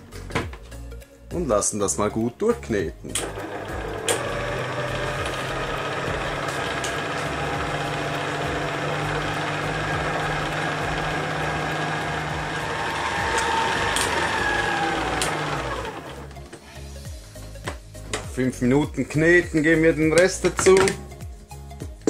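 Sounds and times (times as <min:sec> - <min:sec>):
stand mixer motor humming: 0:03.2 - 0:16.4.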